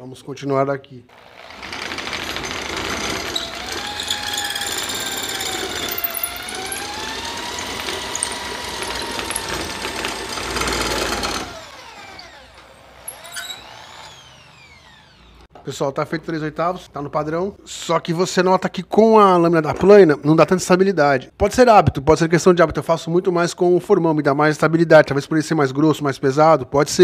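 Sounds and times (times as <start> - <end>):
drill winding down: 1.1 - 15.5
electric drill whining: 1.1 - 15.5.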